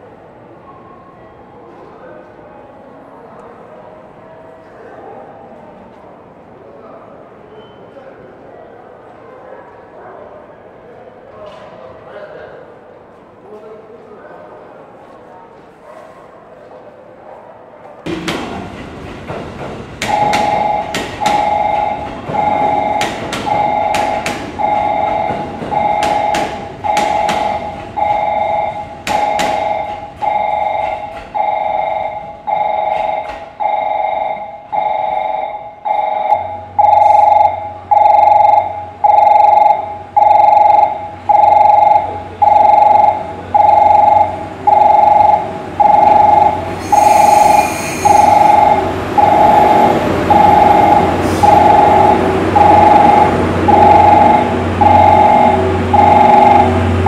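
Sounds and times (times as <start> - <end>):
level crossing bell ringing: 20.0 - 57.0.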